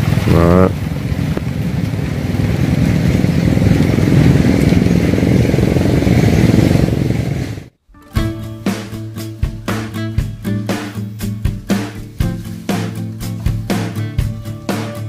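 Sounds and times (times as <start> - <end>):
small diesel engine running: 0.0 - 7.7.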